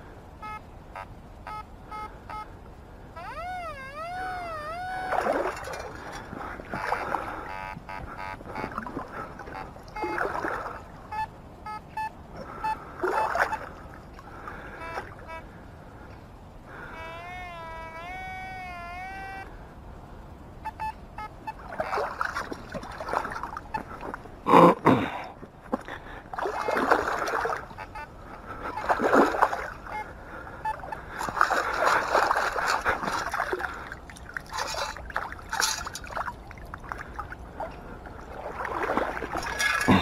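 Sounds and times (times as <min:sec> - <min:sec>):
metal detector warbling tone: 0:03.2 - 0:06.0, 0:09.5 - 0:10.2, 0:17.0 - 0:19.5, 0:34.5 - 0:36.2, 0:39.4 - 0:40.0
water sloshing and splashing: 0:04.9 - 0:11.3, 0:12.0 - 0:15.3, 0:21.5 - 0:24.4, 0:25.7 - 0:40.0.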